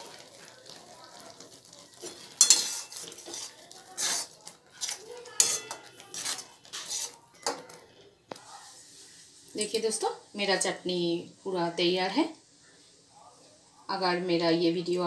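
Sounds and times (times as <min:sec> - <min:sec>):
metal turner scraping a pan: 0:00.0 - 0:07.9.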